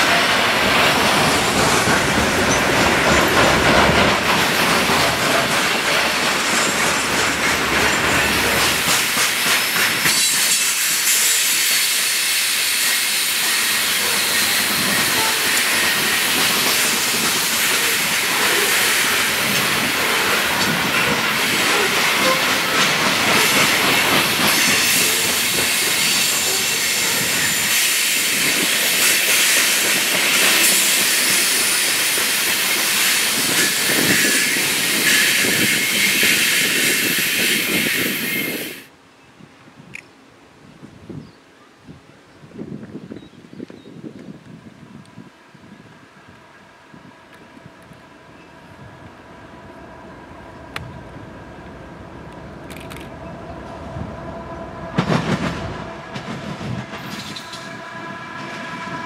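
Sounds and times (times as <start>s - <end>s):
steel wheels hissing on rails: 0.0s - 38.9s, 55.3s - 59.0s.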